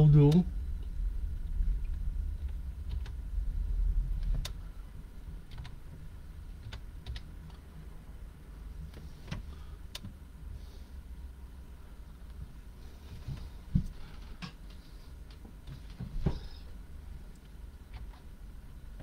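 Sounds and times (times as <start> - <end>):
low rumble: 0.0 - 9.0.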